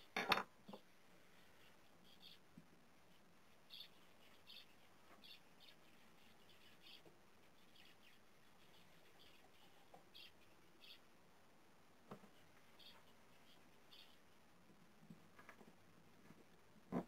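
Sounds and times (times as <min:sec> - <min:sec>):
faint bird chirps: 0:00.7 - 0:11.2, 0:12.2 - 0:14.5.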